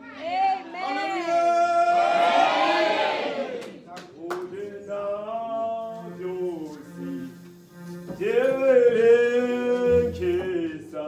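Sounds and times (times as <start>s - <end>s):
choir singing: 0.0s - 3.8s.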